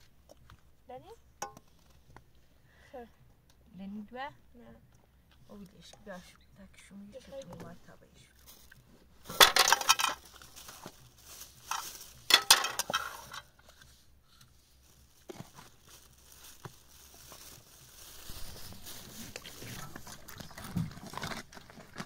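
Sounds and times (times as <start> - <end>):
crunching crackling noise: 8.2 - 22.0.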